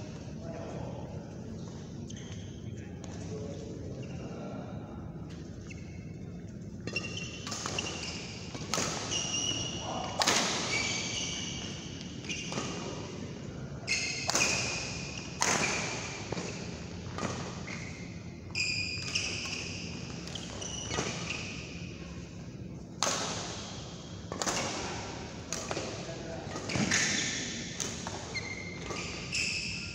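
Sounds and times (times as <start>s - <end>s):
shoes squeaking on court: 1.3s - 4.6s, 5.2s - 29.9s
rackets hitting shuttlecock: 6.9s - 10.8s, 13.9s - 17.6s, 22.9s - 29.5s.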